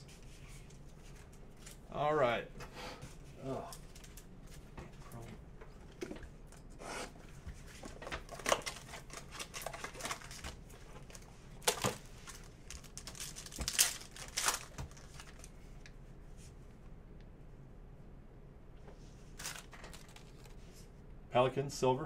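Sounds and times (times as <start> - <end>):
wrapping crinkling: 8.2 - 15.6, 19.3 - 20.7
cardboard tearing: 12.8 - 15.5.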